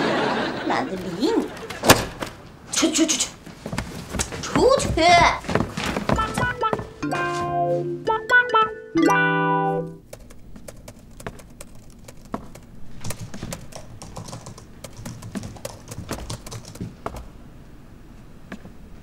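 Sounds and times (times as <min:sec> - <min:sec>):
typing on computer keyboard: 0:10.0 - 0:17.3.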